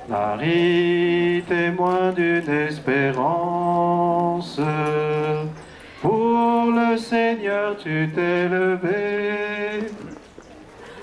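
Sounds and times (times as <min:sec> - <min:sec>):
person singing slow melody: 0:00.0 - 0:10.2.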